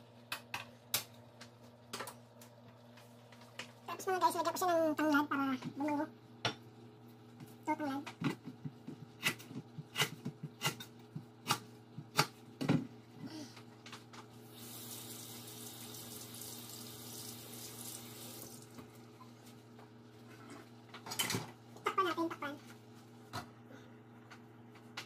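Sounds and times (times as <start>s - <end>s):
knife chopping on cutting board: 8.4s - 12.4s
kitchen tap running: 14.4s - 19.1s.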